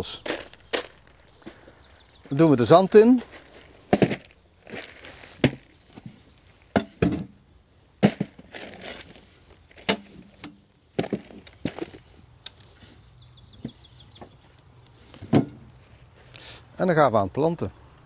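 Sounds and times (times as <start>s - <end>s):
soil falling rustle: 0.0s - 6.8s, 8.0s - 12.7s.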